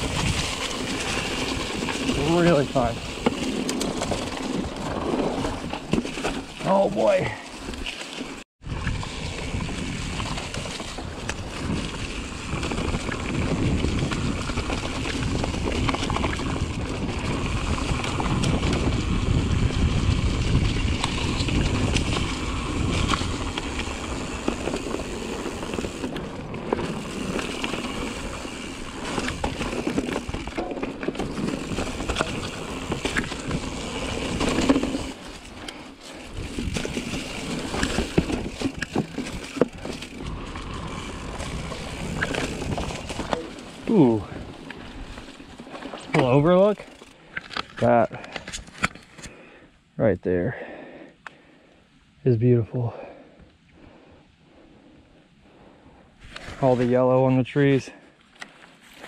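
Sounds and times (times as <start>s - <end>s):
bike tyres rolling over dirt and leaves: 0.0s - 49.6s, 55.5s - 59.0s
wind rushing over microphone: 8.6s - 29.6s.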